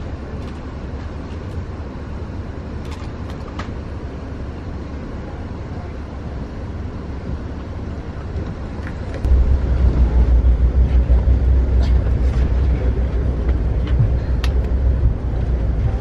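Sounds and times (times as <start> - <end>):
train wheels rumbling on rails: 6.8 - 16.0.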